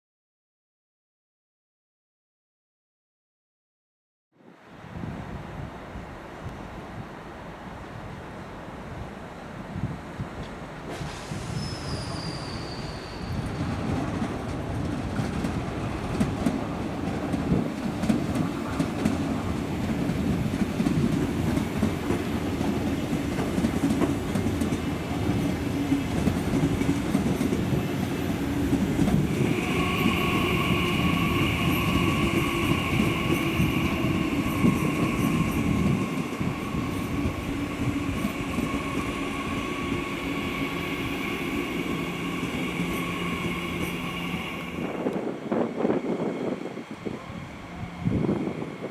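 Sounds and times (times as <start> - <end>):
train wheels rumbling on rails: 9.8 - 48.9
high wheel squeal: 11.2 - 13.9.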